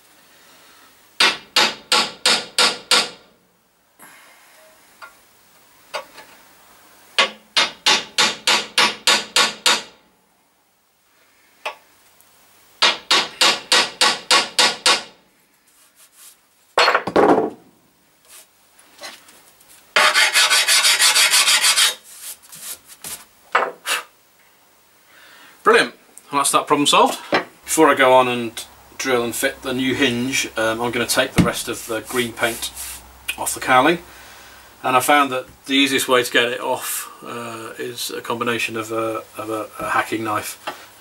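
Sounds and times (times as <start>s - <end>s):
filing metal: 20.0s - 22.0s.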